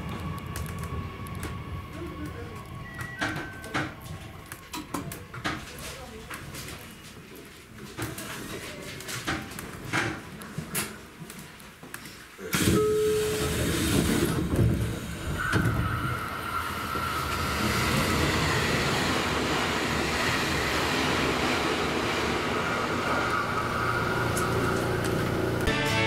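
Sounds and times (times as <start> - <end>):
passing train rumble: 0.0 - 5.2, 12.8 - 25.7.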